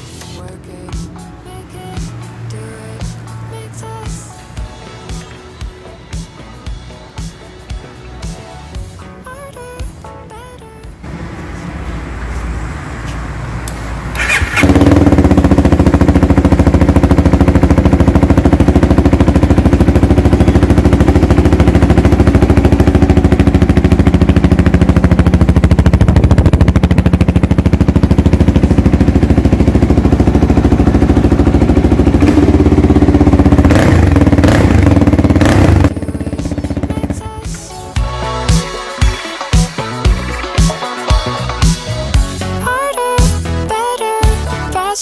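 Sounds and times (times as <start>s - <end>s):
motorcycle engine idling: 14.1s - 37.8s.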